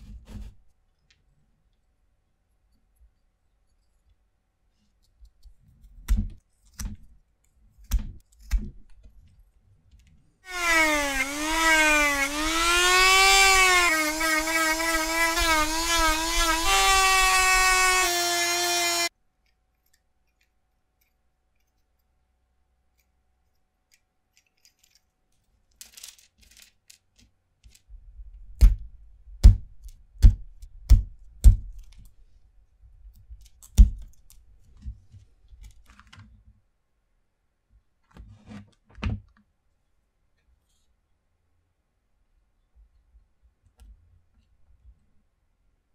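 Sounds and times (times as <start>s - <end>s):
rotary tool sanding wood: 10.5s - 19.1s.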